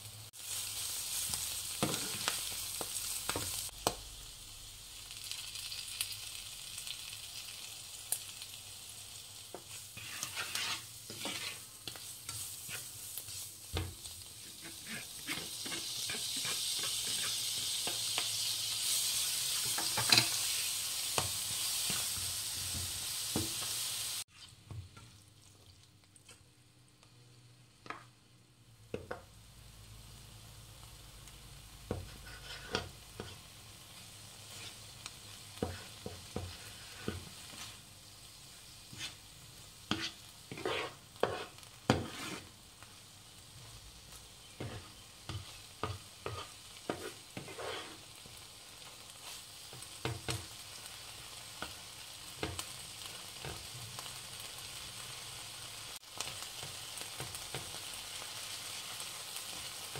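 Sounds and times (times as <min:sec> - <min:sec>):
vegetables sizzling in frying pan: 0:00.0 - 0:26.2, 0:27.7 - 0:59.9
spatula scraping and knocking pan: 0:01.8 - 0:02.4, 0:09.5 - 0:18.3, 0:19.5 - 0:23.6, 0:31.9 - 0:33.4, 0:35.6 - 0:37.8, 0:38.9 - 0:39.2, 0:39.9 - 0:42.5, 0:44.4 - 0:48.1.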